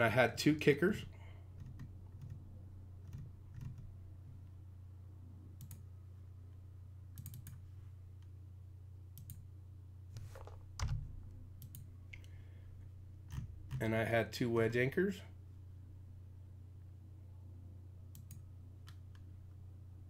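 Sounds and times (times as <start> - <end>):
steady low hum: 0.0 - 20.0
computer mouse clicks: 5.6 - 5.8, 7.2 - 7.6, 9.2 - 9.4, 11.6 - 12.3, 18.1 - 19.3.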